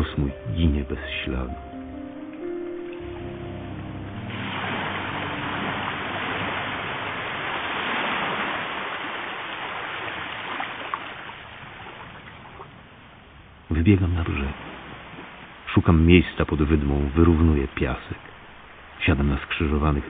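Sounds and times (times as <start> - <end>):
waves washing onto a beach: 4.2 - 20.0.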